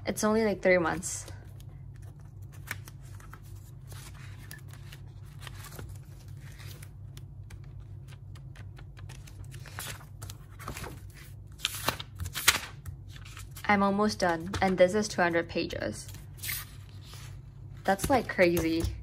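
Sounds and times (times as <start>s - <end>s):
notebook pages flipping: 1.5s - 13.6s.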